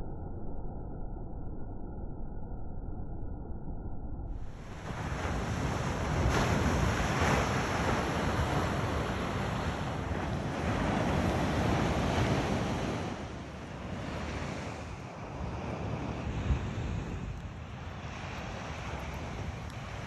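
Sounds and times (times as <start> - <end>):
surf washing onto beach: 4.4 - 20.0
wind buffeting microphone: 4.4 - 20.0.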